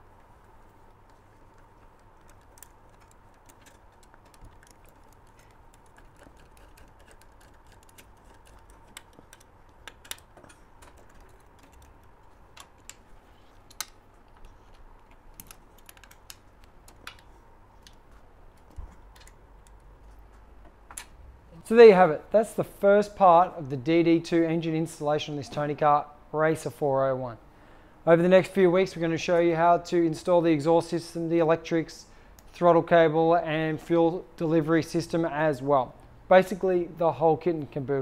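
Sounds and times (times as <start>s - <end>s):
faint steady hum: 0.0s - 38.0s
allen key metallic clicks: 0.9s - 21.2s.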